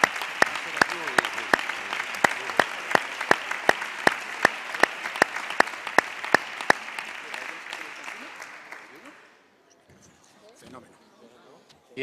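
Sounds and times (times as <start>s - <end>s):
hands clapping close to microphone: 0.0s - 9.2s
crowd applauding: 0.0s - 9.4s.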